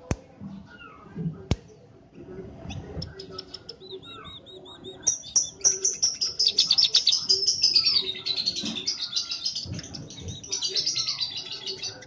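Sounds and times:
small bird singing: 2.7 - 12.0.

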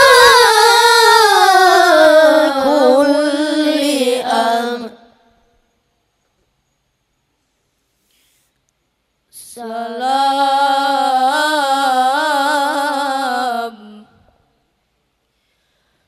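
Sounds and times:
boy reciting melodically: 0.0 - 5.2, 9.4 - 14.2.

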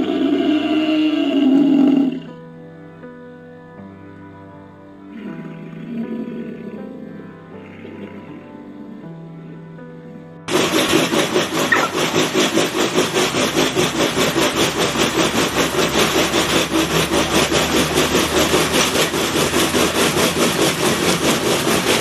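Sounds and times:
treadmill belt rattling: 10.5 - 22.0.

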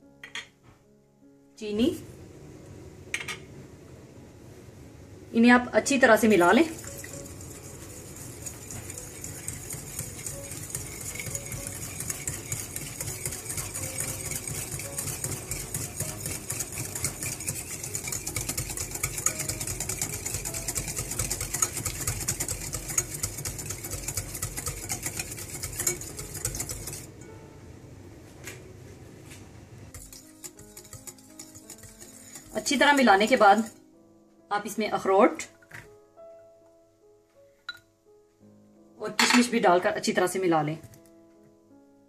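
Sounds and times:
metal whisk clattering in bowl: 6.6 - 27.1, 29.9 - 33.8.

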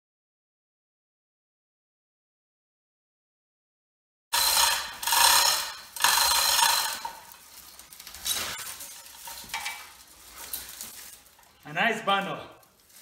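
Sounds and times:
hoist chain rattling through ratchet: 4.4 - 10.6.

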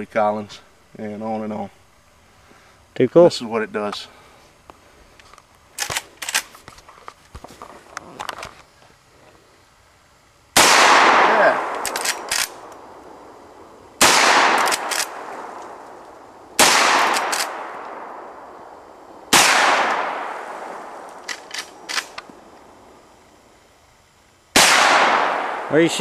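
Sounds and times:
rifle lever clicks: 5.8 - 6.5, 11.8 - 12.6, 14.6 - 15.7, 21.2 - 22.3
rifle shots echoing: 10.6 - 22.2, 24.5 - 26.0.

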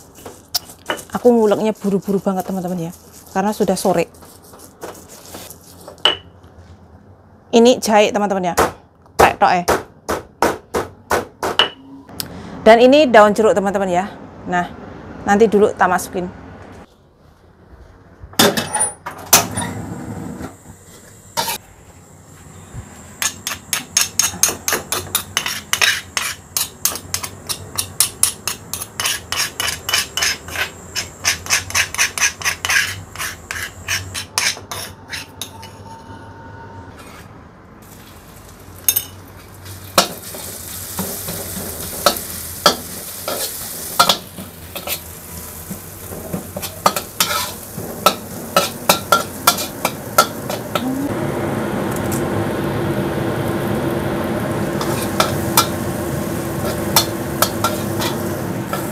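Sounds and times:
frying sizzle in a pan: 22.6 - 34.5, 37.8 - 58.9.

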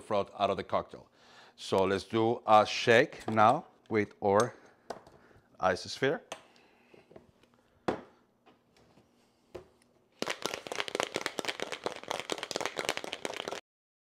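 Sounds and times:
knocks of shaker handling: 9.6 - 13.6
cocktail shaker rattling with ice: 10.2 - 13.6.

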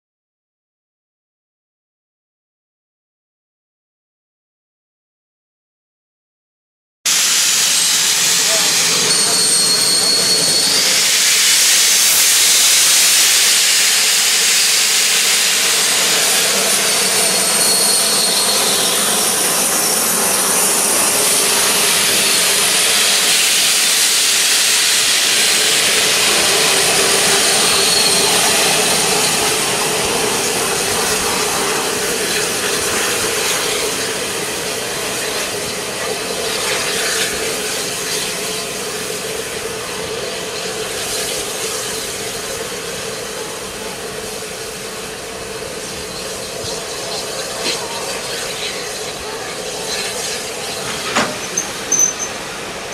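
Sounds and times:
steam locomotive hissing steam: 7.1 - 52.9
faint held tone: 51.2 - 52.9.

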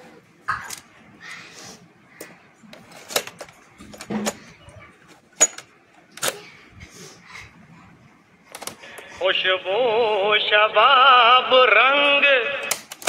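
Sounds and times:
cassette recorder plastic clicks: 12.6 - 13.0.

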